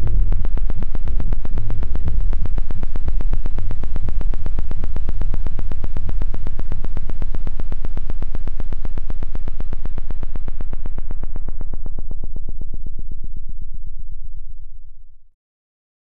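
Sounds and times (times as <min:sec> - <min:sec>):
deep bass drone: 0:00.0 - 0:07.2.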